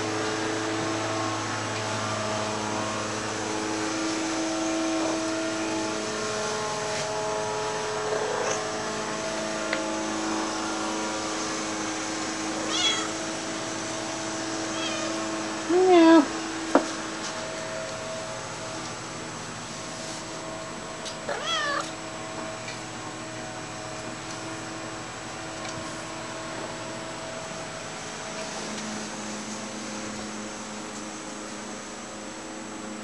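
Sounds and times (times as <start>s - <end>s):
steady background hum: 0.0s - 33.0s
cat meowing: 12.7s - 13.1s, 14.7s - 15.3s, 21.3s - 21.9s.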